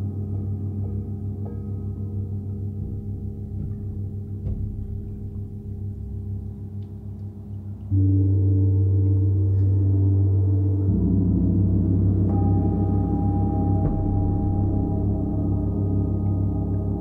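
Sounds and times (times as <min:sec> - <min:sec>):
low gong ringing: 0:07.9 - 0:17.0
large gong struck with mallet: 0:10.9 - 0:17.0.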